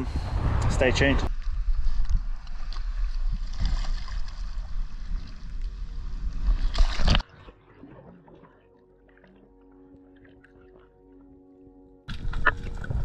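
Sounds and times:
wind rumble on microphone: 0.0 - 7.2, 12.1 - 13.0
water splashing along hull: 1.3 - 11.4.

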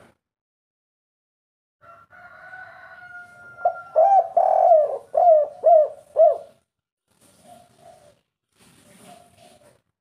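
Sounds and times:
dove cooing: 3.6 - 6.6, 7.3 - 8.2, 9.0 - 9.8.

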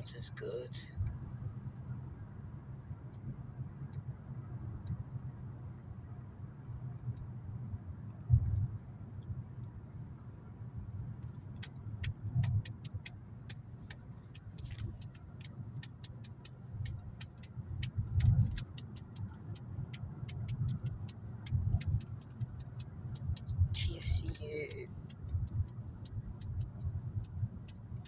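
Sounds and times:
car engine and road rumble: 0.0 - 28.0
turn indicator ticking: 0.0 - 28.0.

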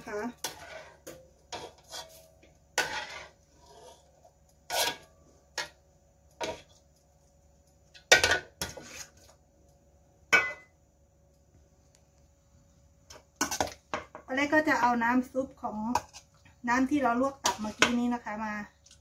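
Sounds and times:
metal spatula scraping wok: 0.0 - 5.8, 6.4 - 6.8, 8.1 - 9.4, 13.1 - 13.8, 15.8 - 18.2.

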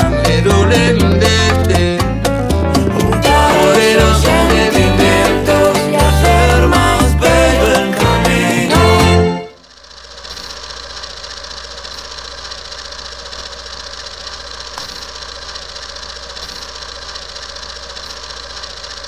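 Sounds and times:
film projector clatter: 9.6 - 19.0.

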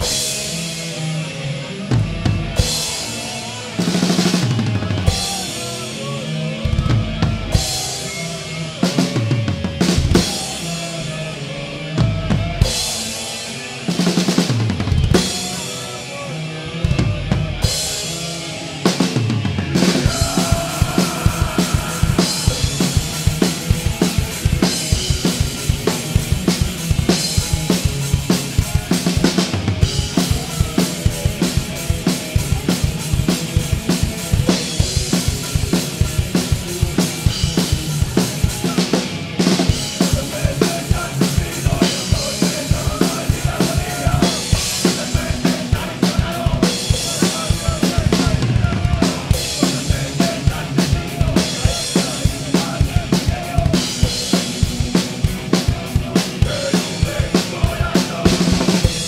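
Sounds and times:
band playing: 0.0 - 59.0
bass drum strokes: 19.6 - 25.2.

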